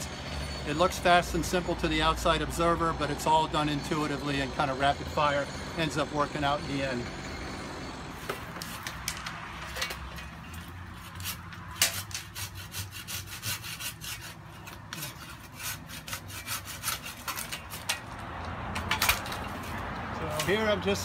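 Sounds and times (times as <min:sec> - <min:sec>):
pruning saw cutting branch: 0:08.2 - 0:10.1, 0:10.8 - 0:21.0.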